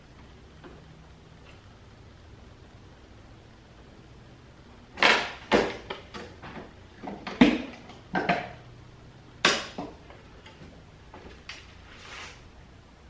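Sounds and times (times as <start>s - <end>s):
plastic bumper knocking and clattering: 5.0s - 8.6s.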